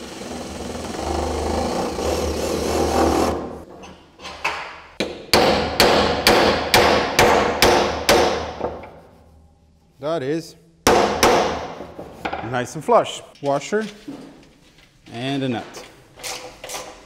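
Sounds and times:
cordless drill boring into wood: 0:00.0 - 0:03.3.

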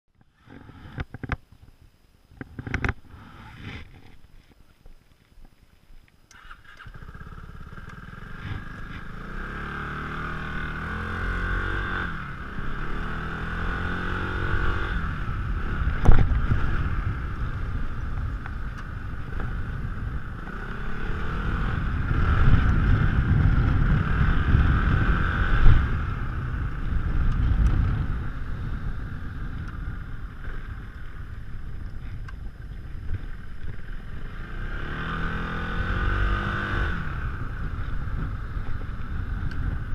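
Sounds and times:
road and wind noise: 0:00.1 - 0:39.9
scooter engine revving: 0:06.4 - 0:28.2.

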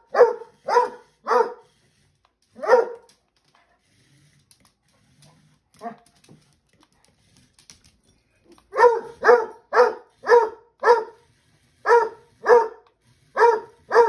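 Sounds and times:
puppy barking: 0:00.0 - 0:01.6, 0:02.6 - 0:03.0, 0:08.7 - 0:11.2, 0:11.9 - 0:12.8, 0:13.4 - 0:14.0.

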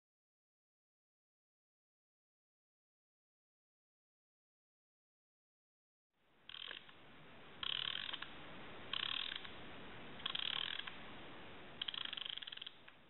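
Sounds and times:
rapid ratcheting rattles: 0:06.5 - 0:06.9, 0:07.6 - 0:08.3, 0:08.9 - 0:09.6, 0:10.2 - 0:11.0, 0:11.8 - 0:12.9
wooden gears whirring: 0:08.9 - 0:09.5, 0:10.2 - 0:11.0, 0:11.8 - 0:12.8.

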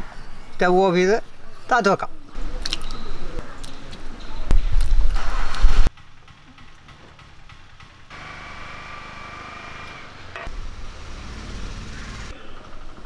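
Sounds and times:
faint road traffic: 0:05.9 - 0:13.0.

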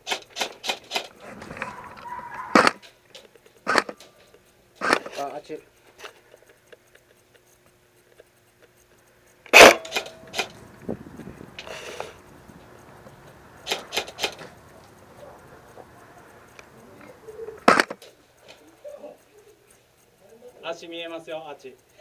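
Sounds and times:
airsoft gun cracks: 0:00.0 - 0:05.3, 0:09.5 - 0:10.7, 0:11.5 - 0:15.8, 0:17.6 - 0:18.6
brief hiss: 0:11.6 - 0:12.2.

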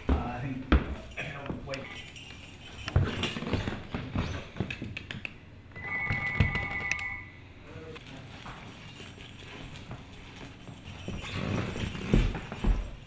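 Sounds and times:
steady ringing tone: 0:05.7 - 0:07.5
wreath scraping on hardwood floor: 0:08.1 - 0:13.0.

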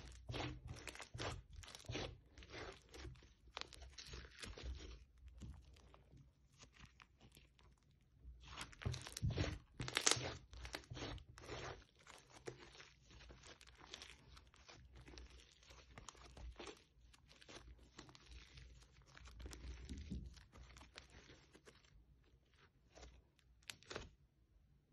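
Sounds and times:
foam-bead slime crunching: 0:00.0 - 0:24.1.

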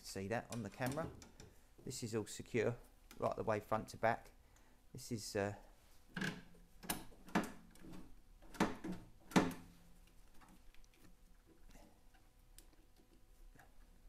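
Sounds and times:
sharp knocks and rattles: 0:06.1 - 0:09.8.

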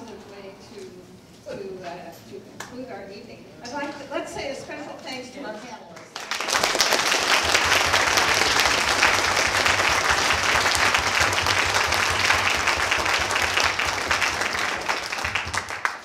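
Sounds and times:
audience applauding: 0:06.0 - 0:16.0.

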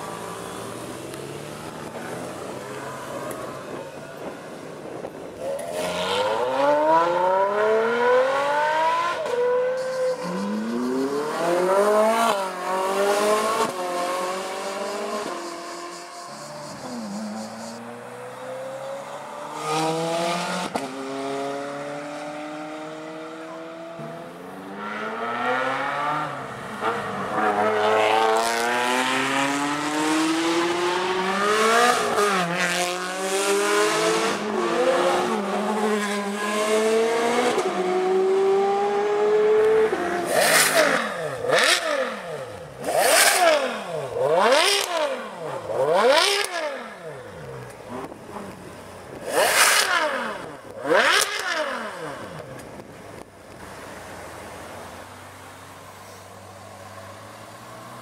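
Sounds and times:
car engine revving: 0:00.0 - 0:52.6
sports cars accelerating past: 0:05.5 - 0:47.4.

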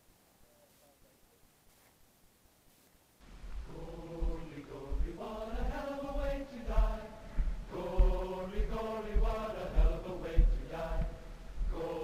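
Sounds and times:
deep low thumps: 0:03.3 - 0:12.0
choir singing long held notes: 0:03.6 - 0:12.0.

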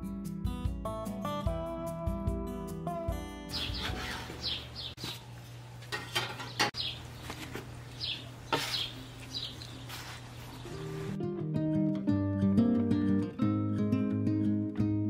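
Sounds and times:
birds chirping: 0:03.5 - 0:05.4, 0:06.2 - 0:11.2.

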